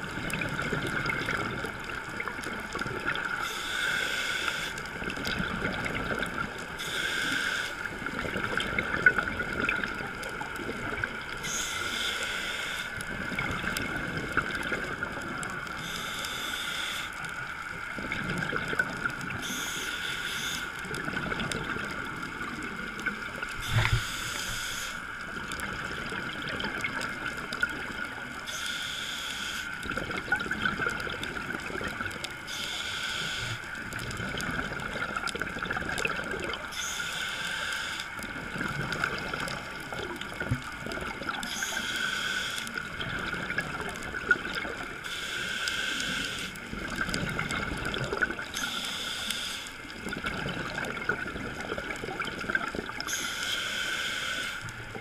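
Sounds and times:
bubbling and gurgling underwater: 0.0s - 55.0s
regulator breathing hiss: 3.4s - 4.9s, 6.8s - 7.9s, 11.4s - 13.0s, 15.8s - 17.3s, 19.4s - 20.8s, 23.6s - 25.2s, 28.4s - 29.8s, 32.5s - 33.7s, 36.7s - 38.2s, 41.5s - 42.8s, 45.0s - 46.6s, 48.5s - 49.9s, 53.0s - 54.8s
steady hum: 10.6s - 51.0s.

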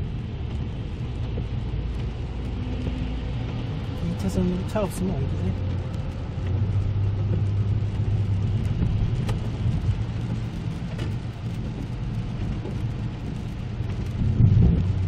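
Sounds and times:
car engine and tyre hum: 0.0s - 15.0s
rain and spray hiss: 0.0s - 15.0s
windscreen wipers sweeping: 0.0s - 15.0s.

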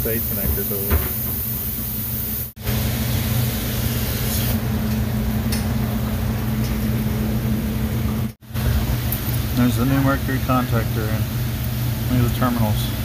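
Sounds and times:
fan-like background noise: 2.6s - 13.0s.

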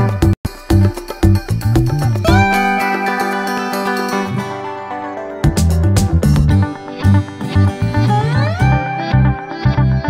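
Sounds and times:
pulsing bass: 0.0s - 2.9s, 5.4s - 10.0s
plucked guitar: 0.0s - 10.0s.

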